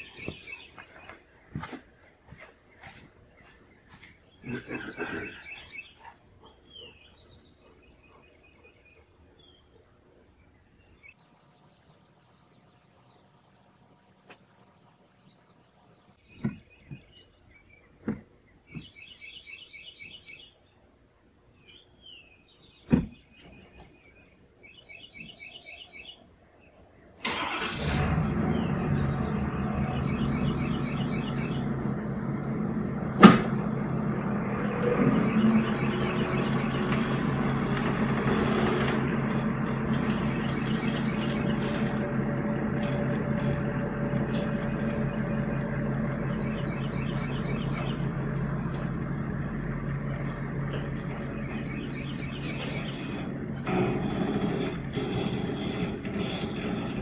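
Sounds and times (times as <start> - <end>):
birds chirping: 0.0 - 57.0
truck engine running: 27.3 - 57.0.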